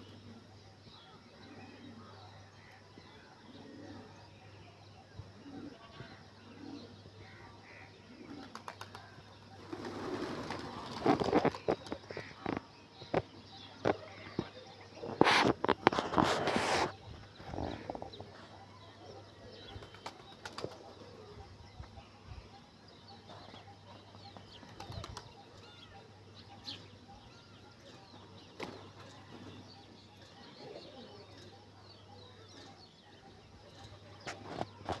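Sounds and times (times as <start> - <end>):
pigeon calls: 8.1 - 9.0, 9.6 - 21.4
pigeon wing flaps: 8.4 - 9.0, 9.6 - 12.0, 19.8 - 20.9.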